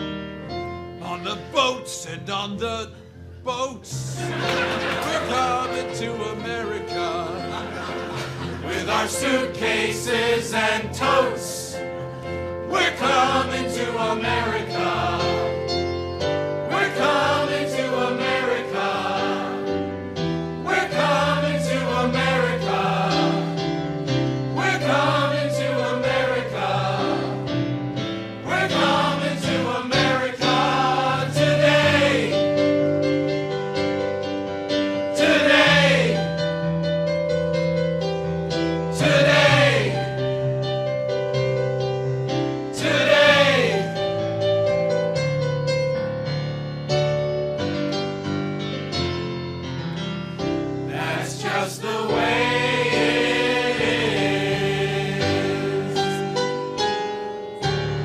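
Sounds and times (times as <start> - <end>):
piano accompaniment: 0.0 - 58.0
cast singing in chorus: 50.9 - 56.3.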